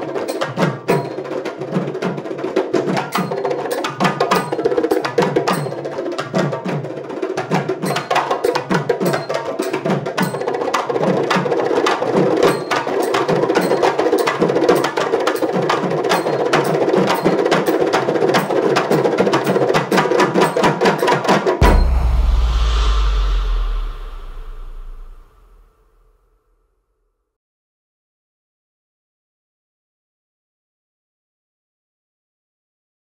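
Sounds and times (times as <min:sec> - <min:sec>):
frame drums played by hand: 0:00.0 - 0:25.1
deep drum strokes dropping in pitch: 0:21.6 - 0:25.6.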